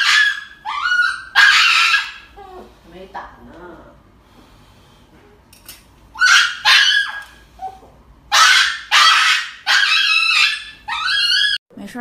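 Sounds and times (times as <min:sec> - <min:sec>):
small dog yelping: 0:00.0 - 0:02.4, 0:06.2 - 0:11.6.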